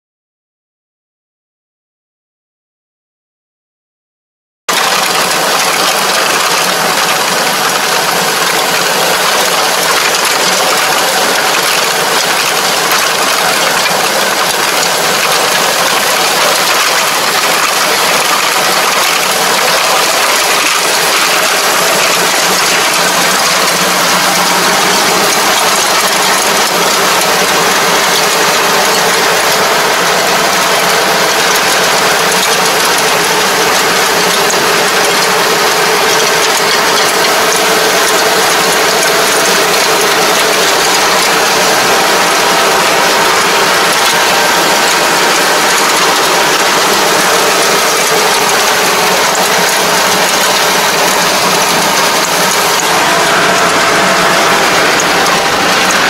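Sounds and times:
farm machinery engine and gear clatter: 0:04.7 - 0:56.0.

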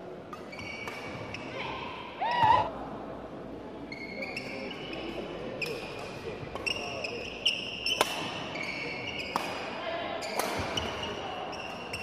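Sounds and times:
rackets striking shuttlecock: 0:00.3 - 0:01.4, 0:07.8 - 0:08.4, 0:09.2 - 0:11.0
sneakers squeaking on floor: 0:00.4 - 0:01.6, 0:03.9 - 0:12.0.

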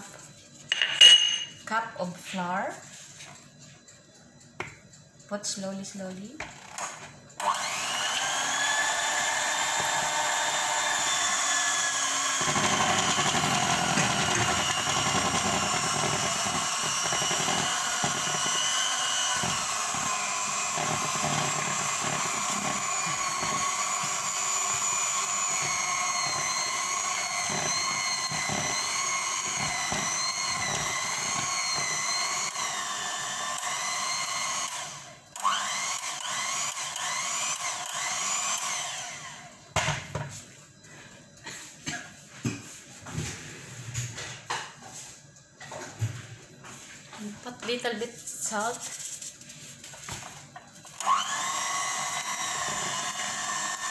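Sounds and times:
electric hand mixer whine: 0:06.7 - 0:40.0, 0:50.0 - 0:53.9.

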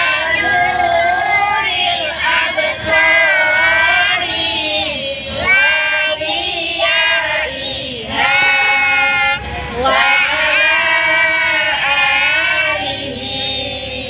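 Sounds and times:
children and women singing: 0:00.0 - 0:14.0.

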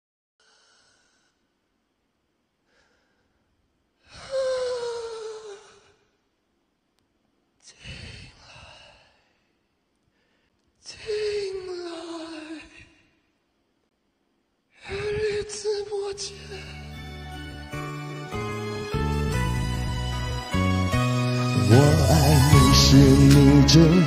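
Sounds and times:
faint breaths: 0:00.4 - 0:01.5, 0:02.6 - 0:06.1, 0:07.6 - 0:11.5.

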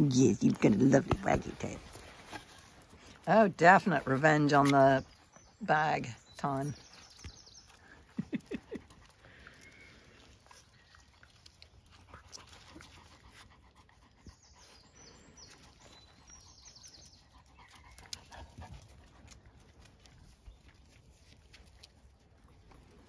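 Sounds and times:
dogs scuffling and panting: 0:00.0 - 0:05.6, 0:10.3 - 0:23.0.

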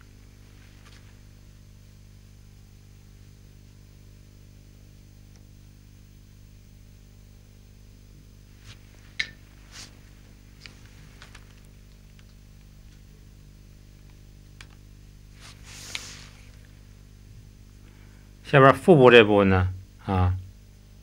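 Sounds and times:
low electrical hum: 0:00.0 - 0:21.0
faint hiss: 0:08.2 - 0:14.2, 0:14.8 - 0:21.0.

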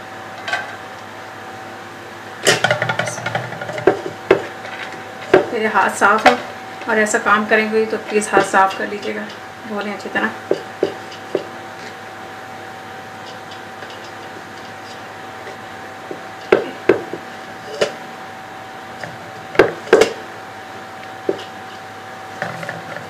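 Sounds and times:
faint steady hum: 0:00.0 - 0:23.0
utensil knocking against pot: 0:10.5 - 0:11.5.

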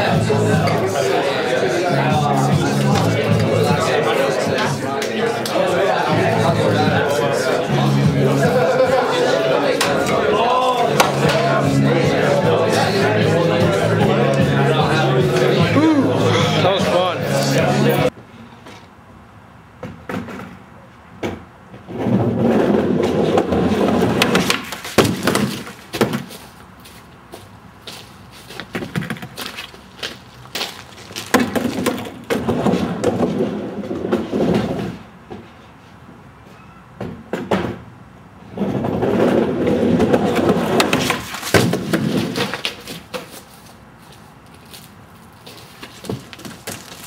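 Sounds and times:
skateboard clacking on wood: 0:21.2 - 0:26.3, 0:38.7 - 0:43.6
skateboard wheels rolling on wood: 0:21.2 - 0:35.9, 0:38.4 - 0:47.0.

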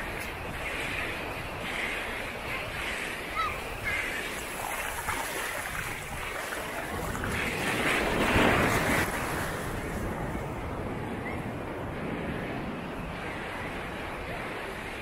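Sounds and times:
surf washing onto shore: 0:00.0 - 0:11.0
wind buffeting microphone: 0:00.0 - 0:15.0.

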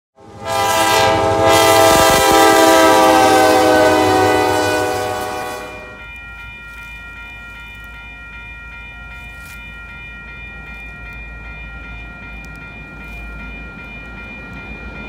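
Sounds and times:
locomotive horn blast: 0:00.2 - 0:06.0
crossing warning bell ringing: 0:00.2 - 0:15.0.

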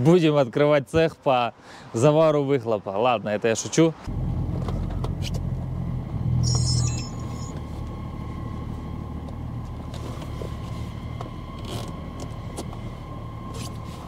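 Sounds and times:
diesel car engine running: 0:04.1 - 0:14.0
short high squeak: 0:06.4 - 0:07.6.

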